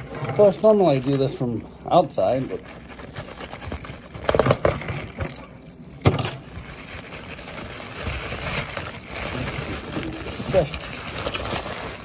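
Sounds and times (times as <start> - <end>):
plastic mailer rustling and crinkling: 0.0 - 5.5, 6.3 - 12.0.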